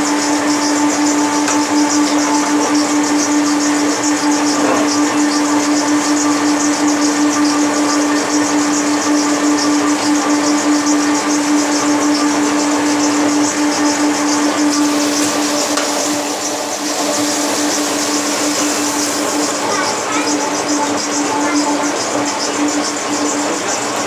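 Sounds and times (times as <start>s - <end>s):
machine hum: 0.0s - 24.0s
fast rattling hiss: 12.6s - 21.6s.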